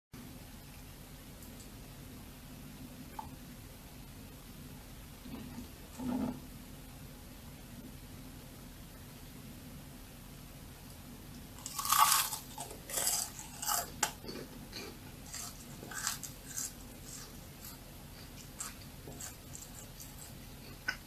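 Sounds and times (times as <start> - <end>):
crunchy food being chewed: 11.6 - 21.0.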